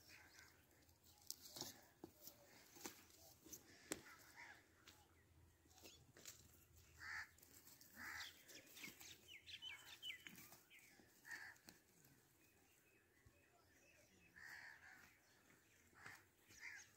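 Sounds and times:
dry stubble crackling: 0.0s - 5.0s.

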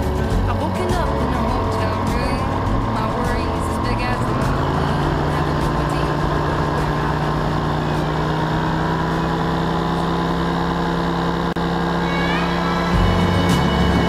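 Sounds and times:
paramotor engine running: 0.0s - 14.0s.

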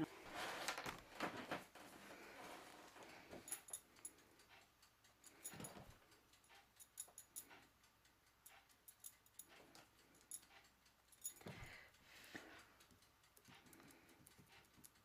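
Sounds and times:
faint clicks: 3.5s - 15.0s.

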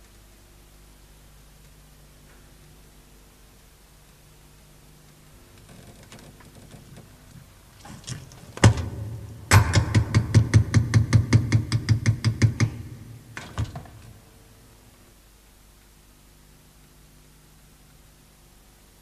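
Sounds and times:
heavy knocks: 8.6s - 14.0s.

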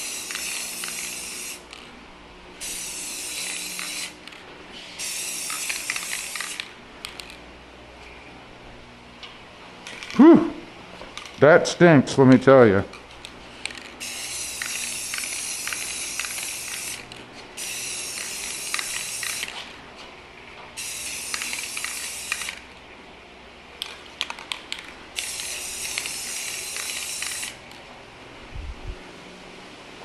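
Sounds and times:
aerosol spray can hissing: 0.0s - 1.6s, 2.6s - 4.2s, 4.8s - 6.7s, 13.7s - 19.6s, 20.8s - 22.6s, 25.2s - 27.6s.

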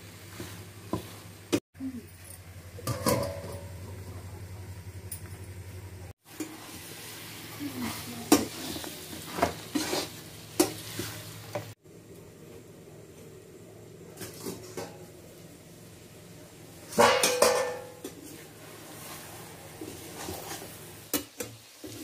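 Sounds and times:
curry sizzling in a pan: 6.2s - 11.8s, 14.2s - 22.0s
spatula scraping a pan: 7.8s - 11.3s, 17.2s - 20.9s.

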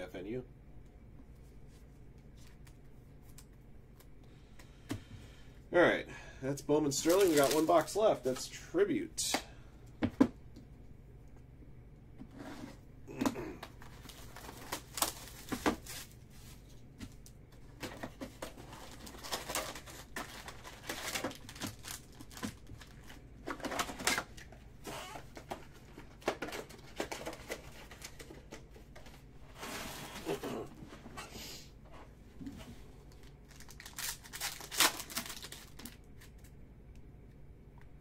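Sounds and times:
foil wrappers crinkling: 6.9s - 8.5s, 13.8s - 17.3s, 18.4s - 24.5s, 33.1s - 36.5s.

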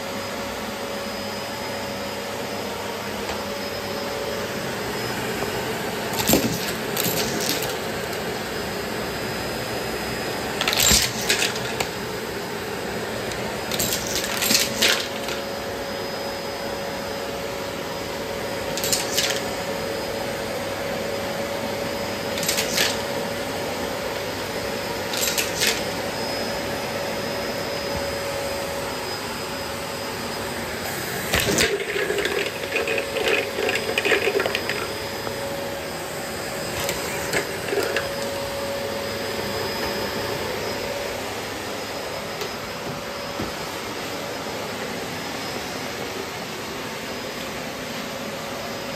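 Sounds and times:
vacuum cleaner running: 0.0s - 48.9s
objects rattling through vacuum hose: 6.1s - 8.2s, 10.6s - 12.0s, 13.6s - 15.4s, 18.8s - 19.6s, 22.3s - 23.1s, 25.0s - 25.9s, 30.8s - 35.4s, 36.6s - 39.0s.

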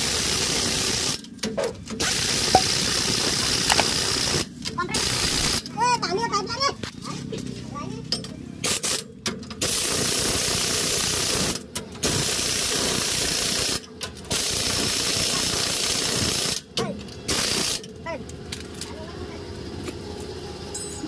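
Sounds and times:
pneumatic impact wrench hammering: 0.0s - 5.7s, 8.6s - 17.9s.

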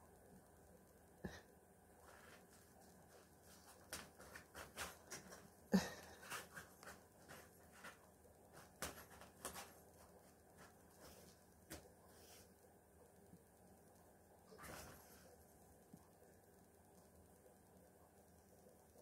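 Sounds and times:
kitten rustling and scratching: 2.0s - 12.8s, 14.5s - 16.1s.

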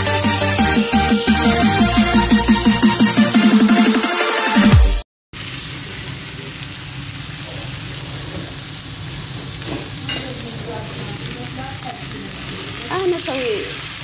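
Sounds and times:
electronic dance music: 0.0s - 5.0s
chicken sizzling in hot oil: 5.4s - 14.0s.

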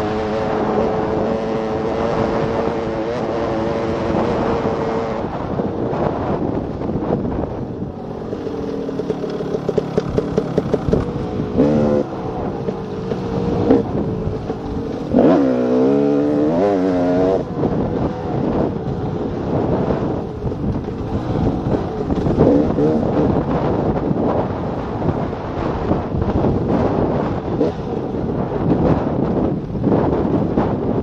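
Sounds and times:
two-stroke engine revving: 0.0s - 5.7s, 8.0s - 23.6s
wind rushing over microphone: 0.0s - 31.0s.

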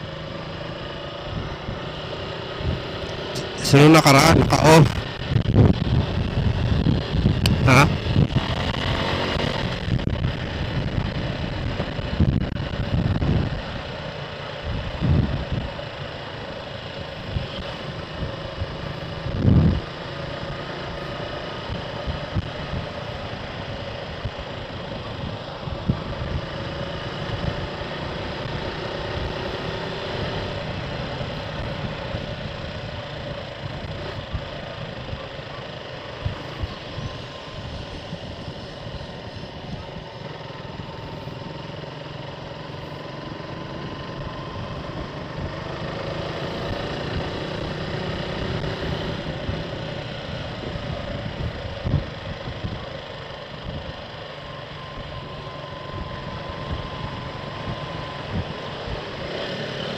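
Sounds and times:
motorcycle engine drone: 0.0s - 59.9s
wind noise on microphone: 3.7s - 13.8s, 14.6s - 15.8s, 17.2s - 20.1s, 21.7s - 27.7s, 36.1s - 41.5s, 44.2s - 54.1s, 54.8s - 59.4s.

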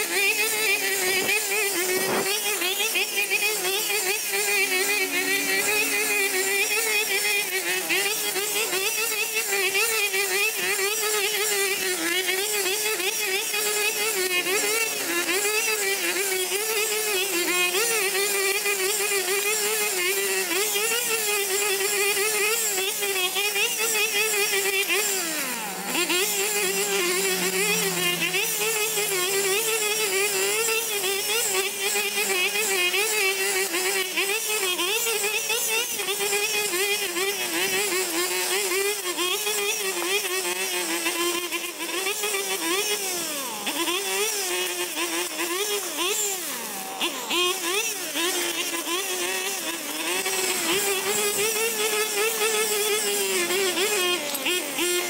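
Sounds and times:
lawn mower engine running: 0.0s - 11.8s, 19.4s - 34.0s, 48.2s - 55.0s.

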